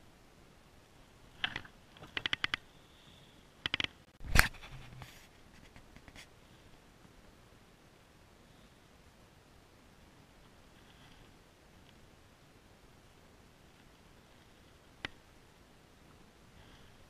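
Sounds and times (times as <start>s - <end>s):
gear clicks and taps: 1.4s - 2.6s, 3.6s - 4.0s.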